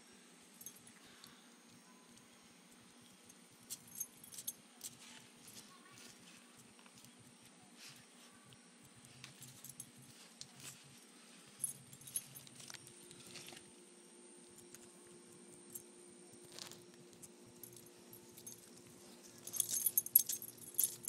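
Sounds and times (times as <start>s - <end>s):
dog collar tags jingling: 17.6s - 21.0s.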